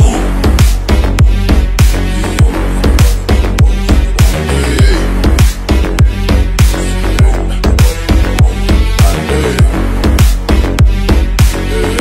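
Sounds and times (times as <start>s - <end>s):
electronic music with heavy beat: 0.0s - 12.0s.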